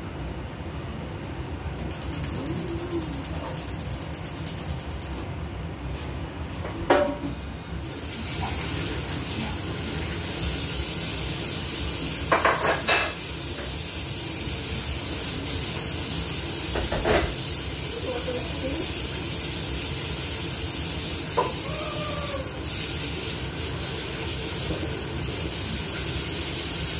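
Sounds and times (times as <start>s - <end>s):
dishes and utensils clattering: 12.3s - 13.2s.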